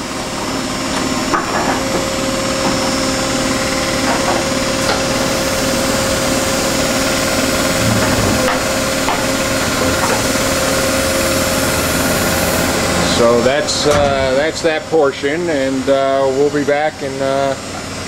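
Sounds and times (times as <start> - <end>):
machinery motor hum: 3.4 - 16.5.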